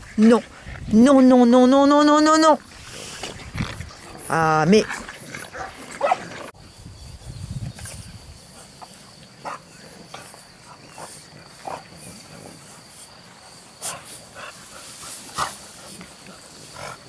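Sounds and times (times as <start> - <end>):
wind rumbling on microphone: 0.0 - 8.7
puppies grunting and snuffling: 2.3 - 17.0.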